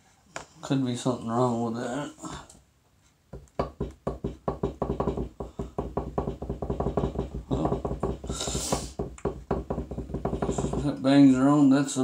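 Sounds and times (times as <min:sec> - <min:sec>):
blower motor knocking: 0:03.6 - 0:11.0.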